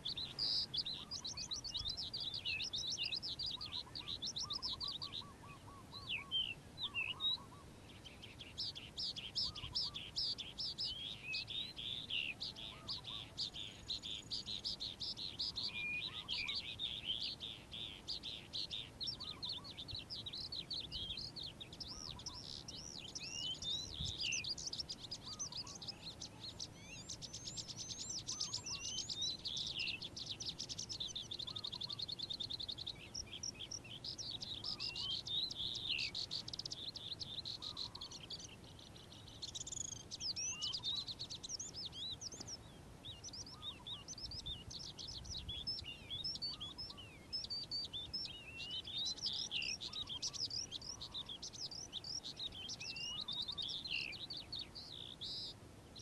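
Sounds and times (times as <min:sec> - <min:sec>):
lark singing: 0:00.0 - 0:55.6.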